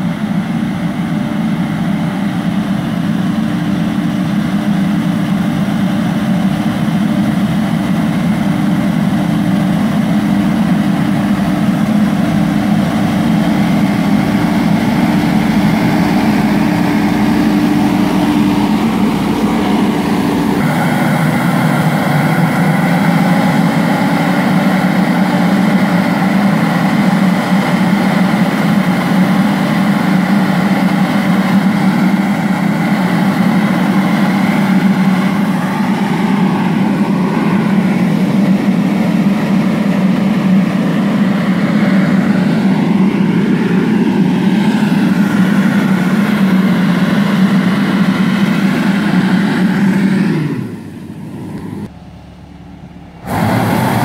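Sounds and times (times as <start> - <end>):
sprayer fan blowing: 0.0 - 54.0
tractor engine running: 0.0 - 54.0.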